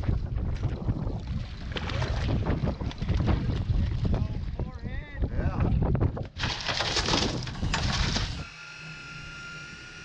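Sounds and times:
water splashing and sloshing: 0.0s - 5.0s, 5.6s - 8.6s
wind buffeting microphone: 0.0s - 8.4s.

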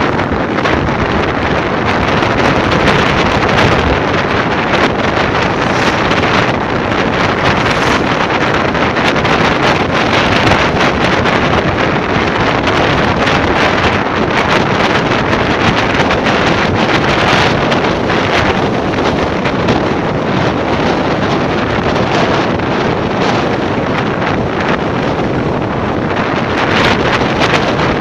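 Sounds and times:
vehicle running noise: 0.0s - 28.0s
wind buffeting microphone: 0.0s - 28.0s.

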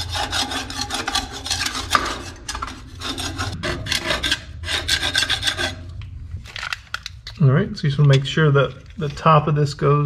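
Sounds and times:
tool scraping stucco off wall: 0.0s - 6.0s.

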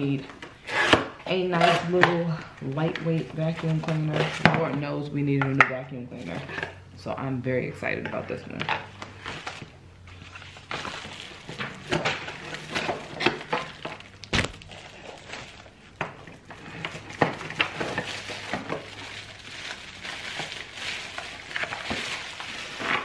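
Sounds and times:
packaging rustling: 9.0s - 23.0s.

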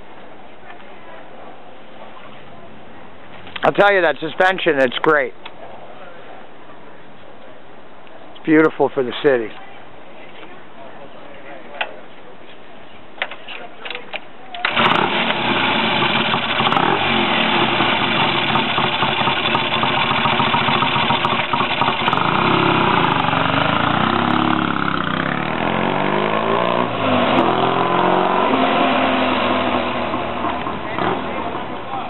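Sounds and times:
motorcycle kick-start: 14.6s - 23.2s
motorcycle engine revving: 14.6s - 32.0s.

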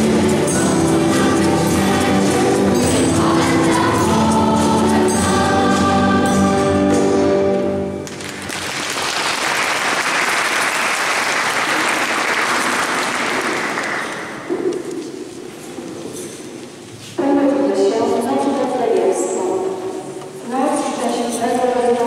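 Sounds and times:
choir singing a carol: 0.0s - 7.9s
audience applause: 8.0s - 14.5s.

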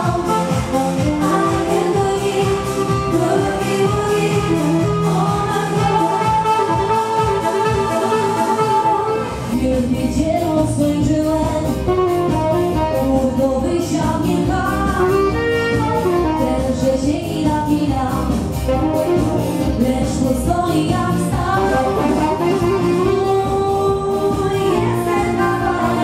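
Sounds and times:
saxophone playing: 0.0s - 9.8s, 11.6s - 13.8s, 14.5s - 17.0s, 18.5s - 19.9s, 21.3s - 26.0s
band accompaniment: 0.0s - 9.9s, 10.6s - 26.0s
woman singing into a microphone: 0.0s - 26.0s.

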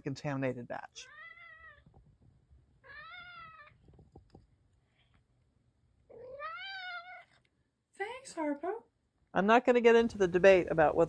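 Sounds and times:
cat meowing: 1.0s - 1.9s, 2.8s - 3.8s, 6.1s - 7.4s.

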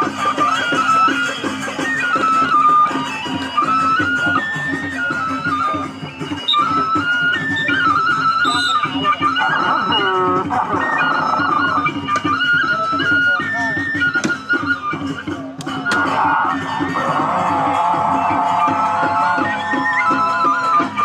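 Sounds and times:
drums and percussion: 0.0s - 21.0s
shrill wind instrument melody: 0.0s - 21.0s
person calling out: 9.5s - 10.5s.

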